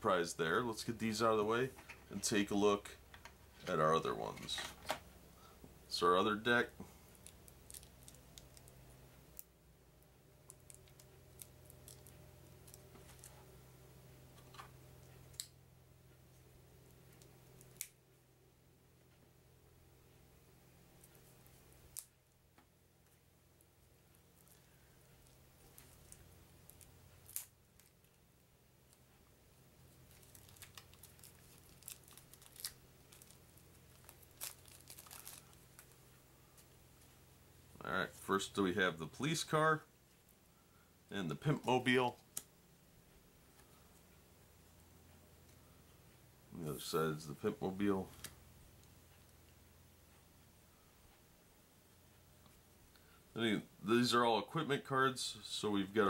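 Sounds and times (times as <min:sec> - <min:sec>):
plastic wrap crackling: 0:07.1 - 0:08.8, 0:10.5 - 0:13.4, 0:29.9 - 0:36.8.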